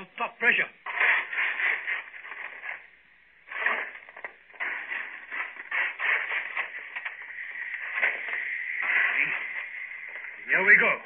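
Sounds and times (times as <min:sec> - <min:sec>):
coal being shovelled: 0:00.8 - 0:02.9, 0:03.5 - 0:10.2.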